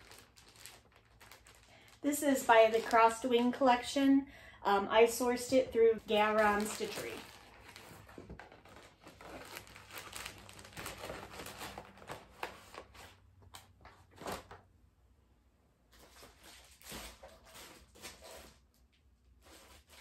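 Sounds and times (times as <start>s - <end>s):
paper and plastic crinkling: 0.0s - 3.6s, 5.4s - 14.6s, 16.0s - 18.8s.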